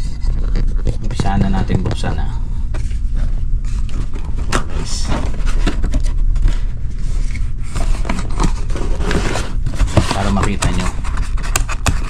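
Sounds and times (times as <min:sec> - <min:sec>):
steady low rumble: 0:00.0 - 0:11.5
cardboard scraping and rustling: 0:02.8 - 0:12.0.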